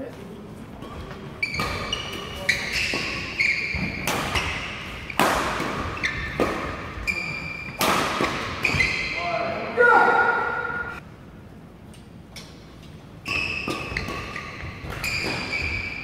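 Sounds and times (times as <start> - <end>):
shoes squeaking on court: 0.0 - 9.3, 12.4 - 16.0
rackets hitting shuttlecock: 0.8 - 9.2, 13.2 - 16.0.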